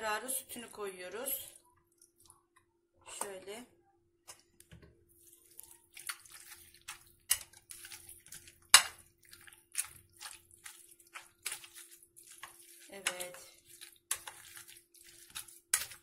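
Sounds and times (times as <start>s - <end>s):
potato masher squelching: 5.2s - 16.0s.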